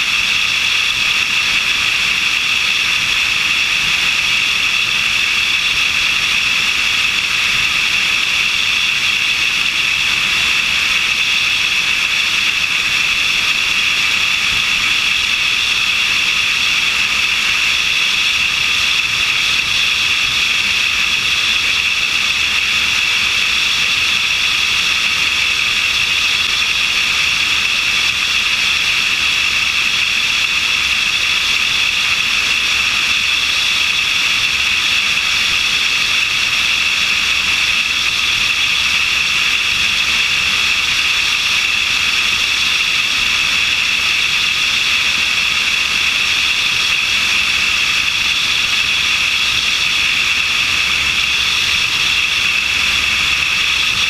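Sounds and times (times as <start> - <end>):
light aircraft engine drone: 0.0 - 54.0
rushing airflow: 37.1 - 54.0.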